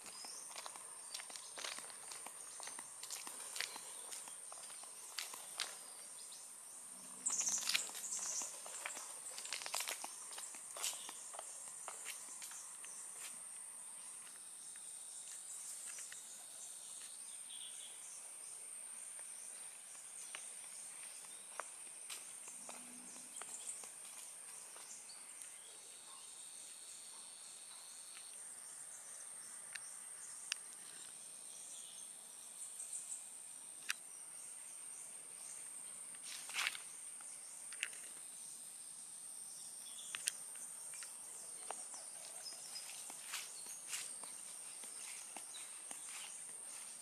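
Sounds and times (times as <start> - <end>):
low insect buzz: 0.0 - 27.6
insects droning high-pitched whine: 0.0 - 47.0.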